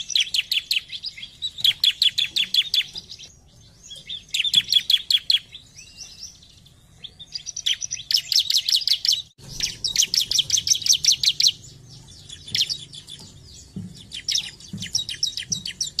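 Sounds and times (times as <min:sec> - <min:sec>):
bird singing sharp high notes: 0:07.2 - 0:16.0.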